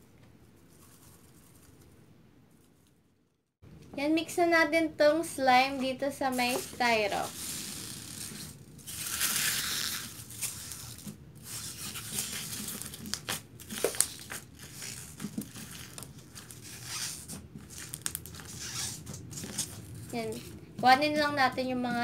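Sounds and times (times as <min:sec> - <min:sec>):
styrofoam crackling: 0:06.2 - 0:22.0
slime squishing: 0:06.3 - 0:22.0.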